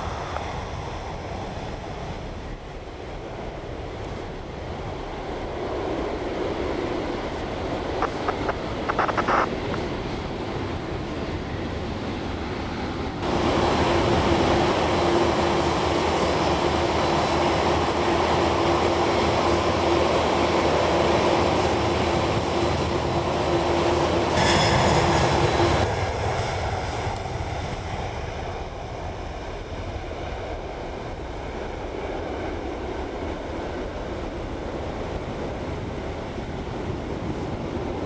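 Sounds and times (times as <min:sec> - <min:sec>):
jet engines roaring: 0:08.0 - 0:09.6, 0:13.2 - 0:30.8.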